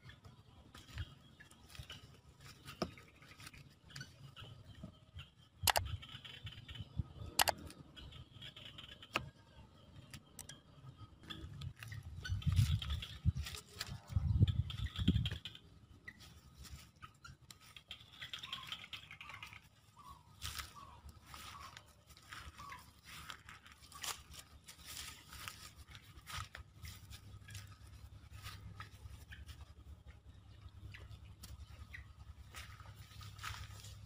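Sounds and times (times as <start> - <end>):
rustling of grass and dry leaves: 0.7 - 4.5, 11.3 - 34.0
sharp clicks: 5.6 - 9.3.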